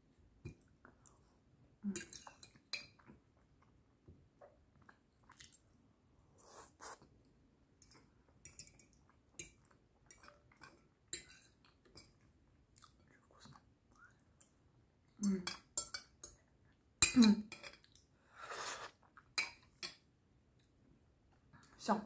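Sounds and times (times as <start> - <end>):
close-up chewing: 4.7 - 5.7.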